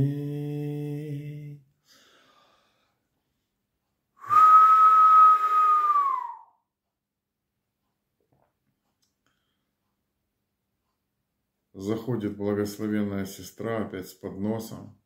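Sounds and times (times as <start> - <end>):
man humming: 0.0 - 1.6
man whistling long note: 4.2 - 6.6.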